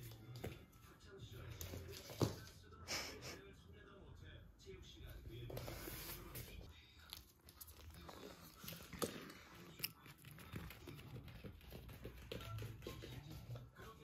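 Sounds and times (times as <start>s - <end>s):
puppy chewing: 6.7s - 13.7s.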